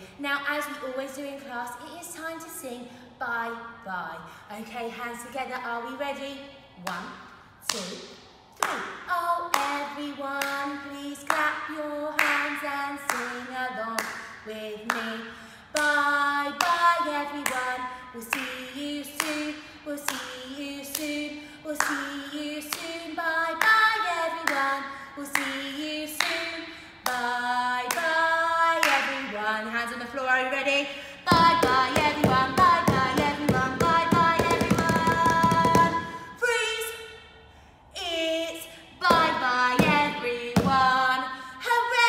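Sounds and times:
woman singing: 0:00.0 - 0:37.2, 0:38.0 - 0:42.0
hands clapping: 0:08.6 - 0:08.9.

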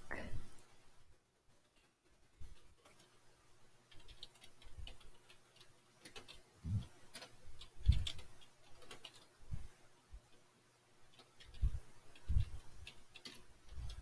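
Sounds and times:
keyboard and mouse clicks: 0:03.9 - 0:09.3, 0:11.1 - 0:14.0.

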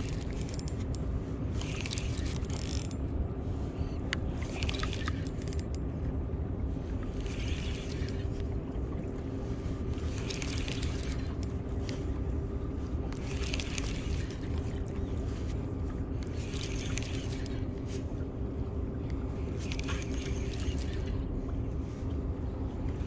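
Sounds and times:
low rumble: 0:00.0 - 0:23.0
spinning reel cranking: 0:01.6 - 0:03.0.

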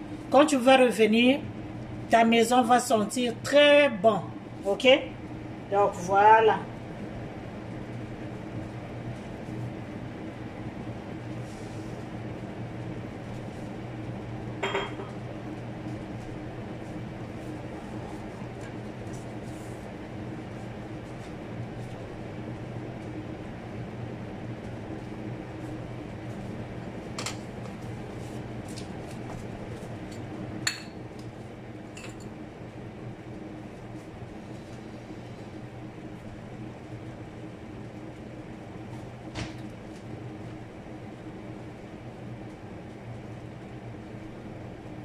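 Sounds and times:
range hood fan running: 0:00.0 - 0:45.0
dishes clinking: 0:14.6 - 0:15.2.

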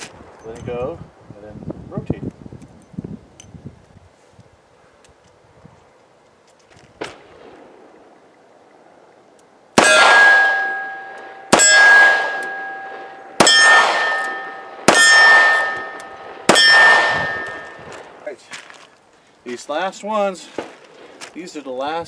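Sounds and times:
steel target ringing clang: 0:09.8 - 0:17.9.

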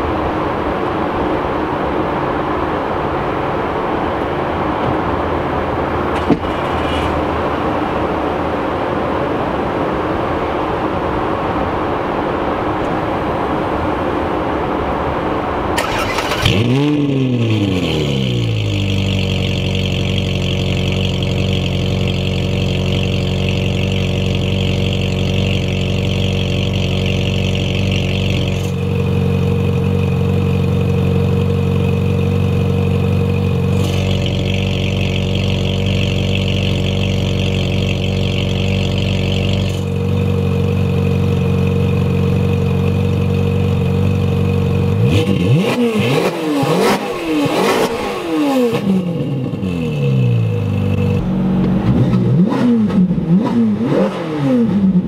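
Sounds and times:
car engine starting and revving: 0:15.6 - 0:55.0
loud car engine idling: 0:15.8 - 0:45.6.

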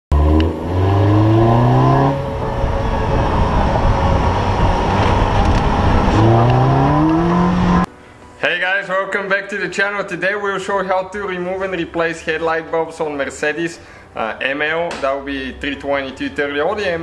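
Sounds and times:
car engine accelerating: 0:00.1 - 0:07.9
tyre and wind noise: 0:00.3 - 0:07.9.

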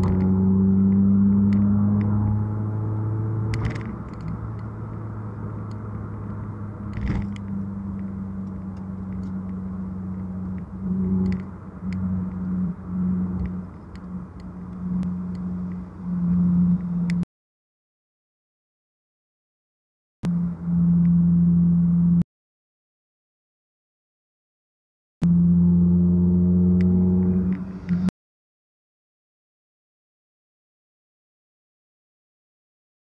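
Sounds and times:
car engine drone: 0:00.0 - 0:17.2, 0:20.2 - 0:22.2, 0:25.2 - 0:28.1
road rumble: 0:00.0 - 0:17.3, 0:20.2 - 0:22.2, 0:25.2 - 0:28.1.

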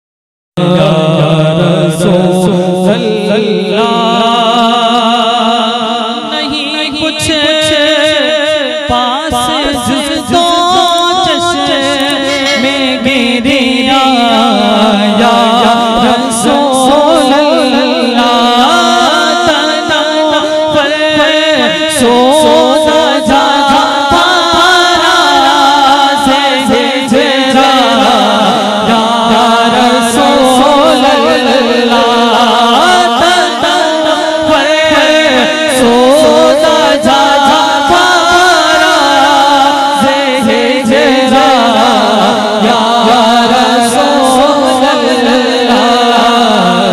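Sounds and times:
man singing into a microphone: 0:00.6 - 0:46.9.

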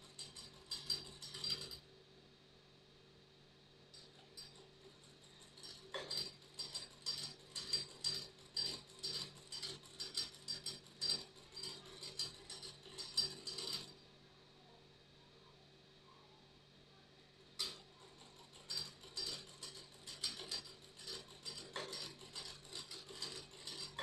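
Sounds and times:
sewing machine clicking: 0:00.0 - 0:01.8, 0:04.0 - 0:14.0, 0:17.6 - 0:24.0.

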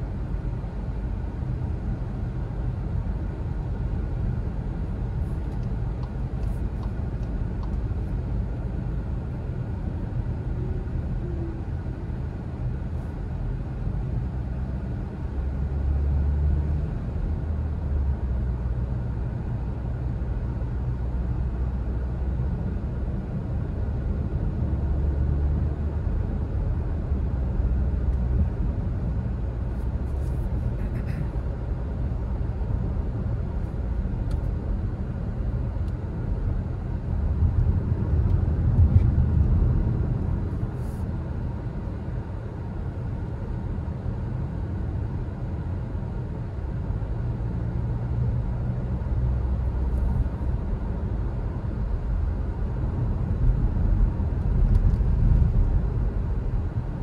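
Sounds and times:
road and engine noise in car cabin: 0:00.0 - 0:57.0.

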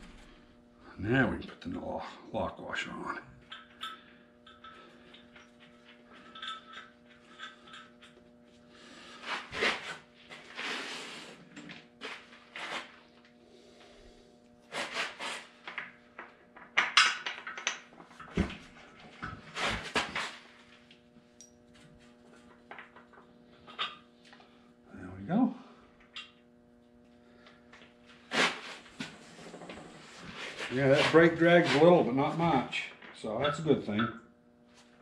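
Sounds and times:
low hum: 0:00.0 - 0:10.7
metal tools clinking and scraping: 0:03.5 - 0:08.2.

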